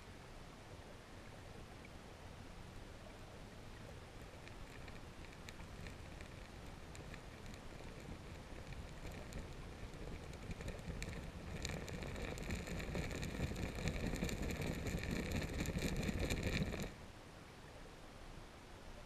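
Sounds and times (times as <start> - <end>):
underwater river current rushing: 0.4 - 17.0
gravel clicking and crackling: 3.0 - 17.0.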